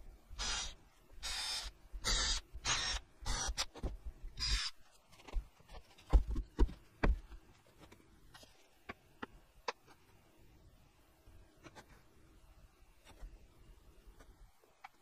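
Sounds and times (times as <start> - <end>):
cordless drill running: 0.4 - 3.6.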